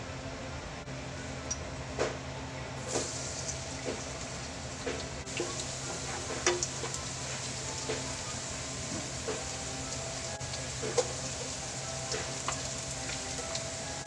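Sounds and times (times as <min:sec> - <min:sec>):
garlic sizzling in hot oil: 0:02.8 - 0:14.0.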